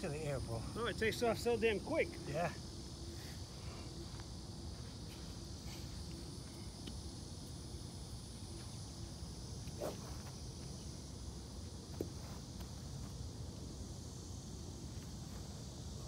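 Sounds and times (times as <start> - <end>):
insects buzzing: 0.0 - 16.0
golf club swish: 9.7 - 10.1.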